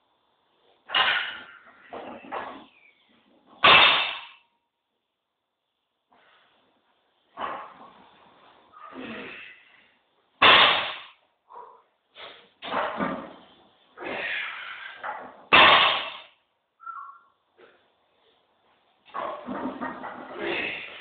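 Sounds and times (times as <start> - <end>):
barbell impact on floor: 0.9 - 1.6, 3.6 - 4.4, 10.4 - 11.2, 15.5 - 16.4.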